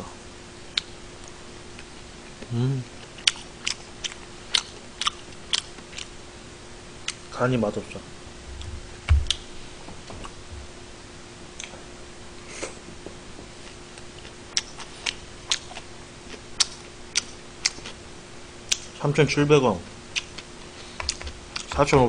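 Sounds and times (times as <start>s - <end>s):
faint steady hum: 0.0s - 22.0s
soft thump: 8.7s - 9.3s.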